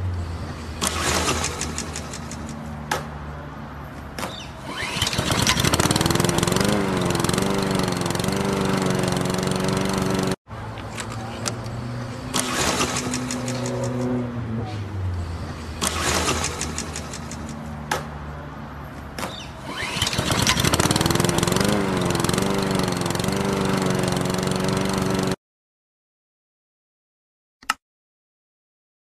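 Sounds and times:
lawn mower engine running: 0:04.7 - 0:14.2, 0:19.7 - 0:25.4
starter cord pulls: 0:04.8 - 0:11.8, 0:12.4 - 0:14.1, 0:19.7 - 0:23.5.

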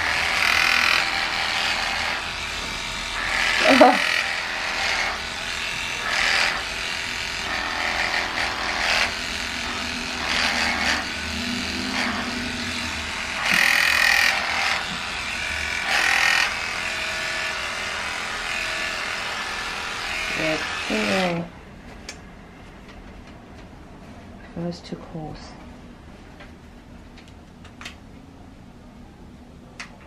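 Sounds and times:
electric clippers humming: 0:00.0 - 0:21.5.

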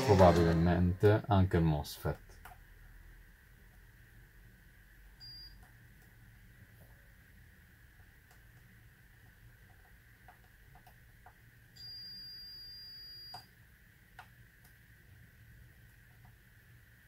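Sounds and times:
multimeter high beep: 0:05.2 - 0:05.6, 0:11.8 - 0:13.5.

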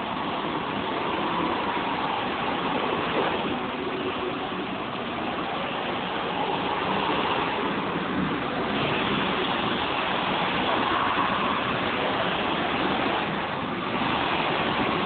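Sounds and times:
go-kart engines: 0:00.0 - 0:15.0.

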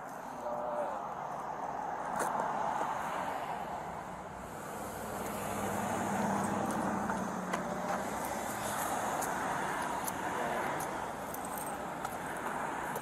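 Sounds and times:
vehicle passing on road: 0:00.0 - 0:13.0.

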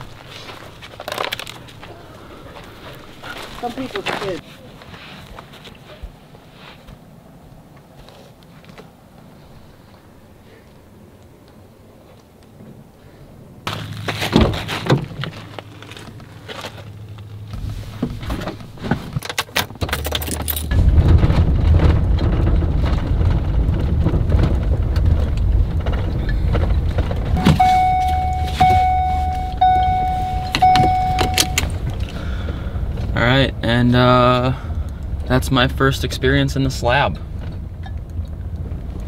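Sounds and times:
truck engine and road noise: 0:00.0 - 0:39.0
keys jingling: 0:19.2 - 0:20.7, 0:27.5 - 0:32.1
electronic chime: 0:27.4 - 0:31.8.

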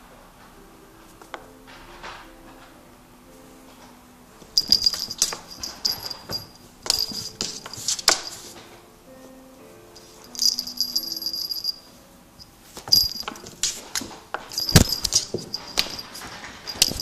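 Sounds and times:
toy wand rattling with bell: 0:04.6 - 0:08.6, 0:10.1 - 0:17.0.

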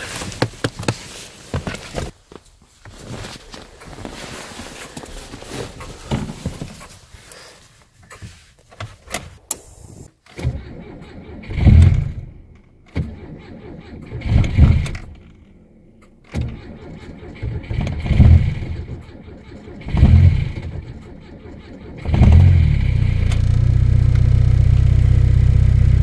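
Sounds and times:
car starter cranking engine: 0:09.5 - 0:25.1.

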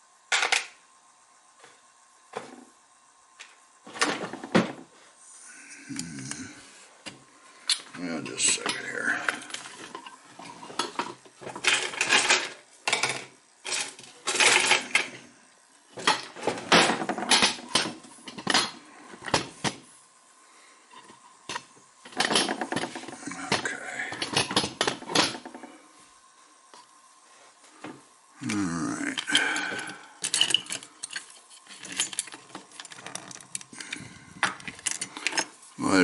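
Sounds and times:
small metal tools clattering: 0:08.4 - 0:15.2, 0:29.2 - 0:33.6, 0:34.4 - 0:35.6.

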